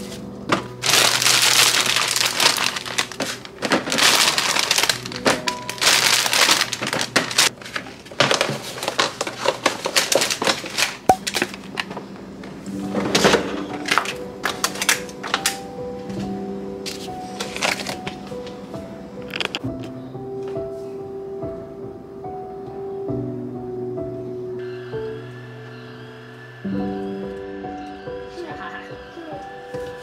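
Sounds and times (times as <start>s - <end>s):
soft background music: 0.0s - 7.6s, 11.1s - 30.0s
plastic bag crinkling: 0.7s - 11.8s.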